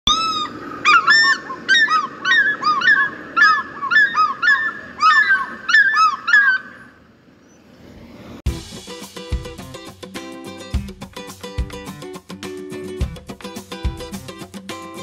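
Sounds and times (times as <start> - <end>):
bird honking calls: 0.1 - 7.0.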